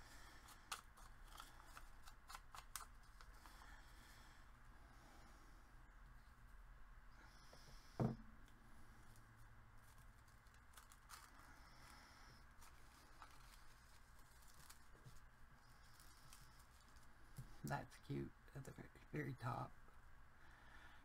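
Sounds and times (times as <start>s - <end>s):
wooden tool knocking on table: 8.0s - 8.3s
paper rustling: 12.6s - 17.1s.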